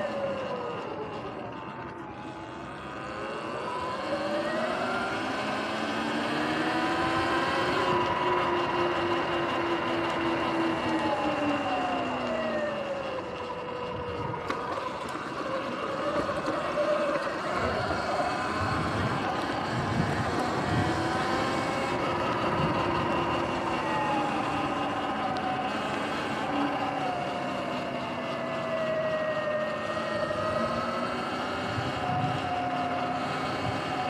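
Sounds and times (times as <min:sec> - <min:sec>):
electric motor whine: 0:00.0 - 0:34.0
wind noise: 0:16.0 - 0:25.8, 0:30.0 - 0:34.0.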